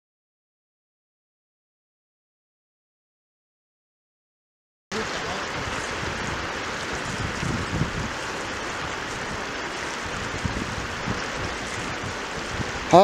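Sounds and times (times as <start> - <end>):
river water rushing over stones: 4.9 - 13.0
wind rumble on microphone: 5.0 - 13.0.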